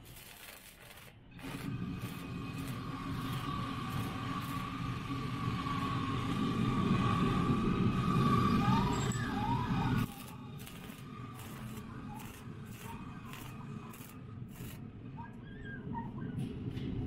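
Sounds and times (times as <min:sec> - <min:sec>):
sharp welding snaps: 0:00.0 - 0:04.8, 0:10.0 - 0:14.8
arc welding crackle: 0:00.0 - 0:05.5, 0:10.0 - 0:14.8.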